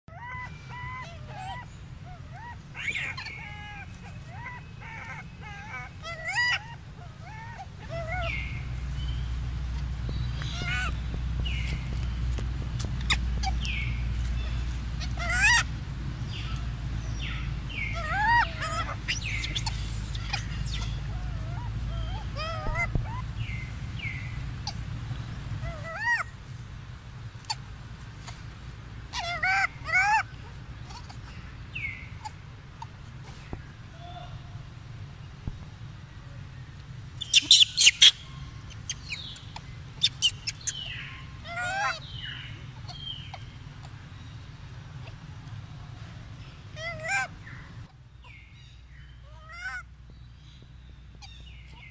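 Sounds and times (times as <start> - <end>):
monkey high-pitched calls: 0.1 - 26.6, 27.4 - 34.6, 37.1 - 49.9, 51.1 - 51.9
animal sharp chirps: 37.2 - 43.5.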